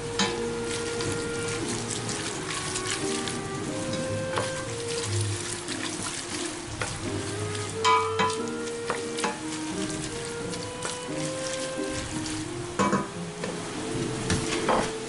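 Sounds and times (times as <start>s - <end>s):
pasta sloshing in a pot: 0.0s - 15.0s
soft background music: 0.0s - 15.0s
spoon knocking against a pot: 7.8s - 9.5s, 12.8s - 13.2s.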